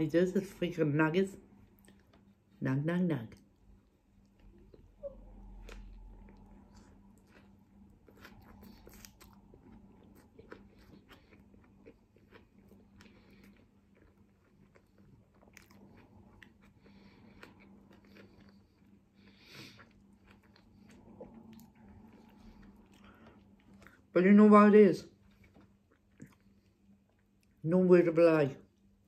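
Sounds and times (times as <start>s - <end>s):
chewing and mouth clicks: 1.7s - 2.4s, 4.1s - 24.1s, 25.2s - 27.6s.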